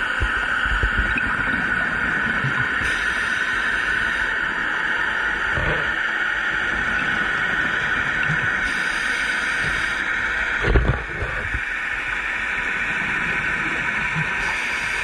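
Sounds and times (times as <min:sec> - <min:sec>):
underwater hiss: 0:02.2 - 0:04.8, 0:06.0 - 0:10.8, 0:11.4 - 0:15.0.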